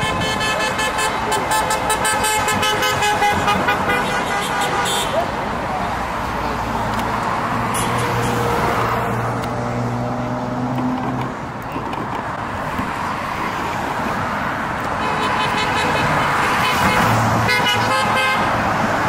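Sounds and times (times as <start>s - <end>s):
car horns honking: 0.0s - 5.3s, 7.7s - 8.8s, 15.0s - 18.6s
road traffic passing: 0.0s - 19.0s.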